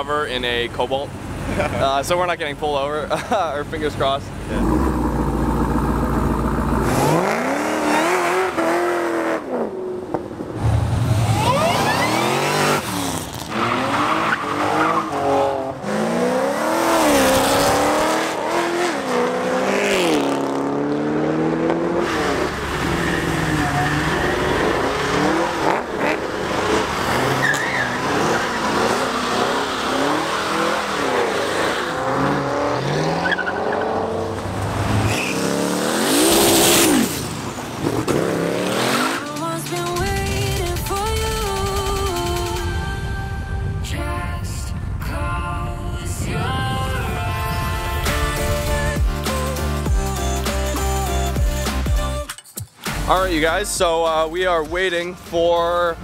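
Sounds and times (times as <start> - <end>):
car engines revving: 0.0 - 42.4
car burnout: 4.5 - 39.3
tyre squeal: 27.2 - 29.4, 35.0 - 35.5.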